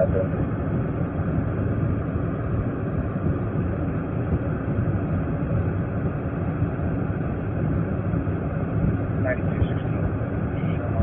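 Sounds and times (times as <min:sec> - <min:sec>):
low rumble inside car: 0:00.0 - 0:11.0.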